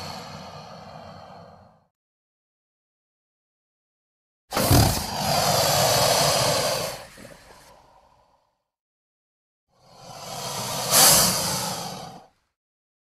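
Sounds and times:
another creature sound: 4.5 - 5.3
creature roar: 4.6 - 7.0.

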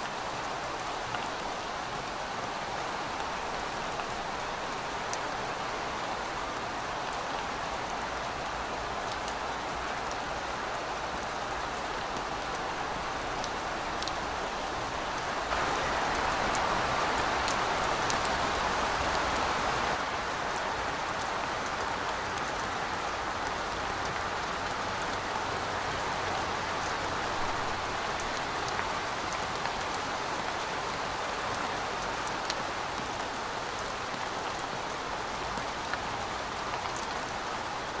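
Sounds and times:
steady rain falling: 0.0 - 38.0.

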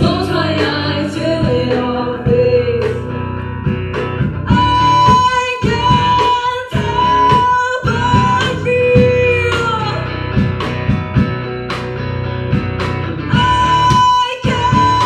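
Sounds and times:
woman singing: 0.0 - 3.2, 4.5 - 10.2, 13.3 - 15.0
acoustic-electric guitar: 0.0 - 15.0
drum kit played with sticks: 0.0 - 15.0
electric bass: 0.0 - 15.0.

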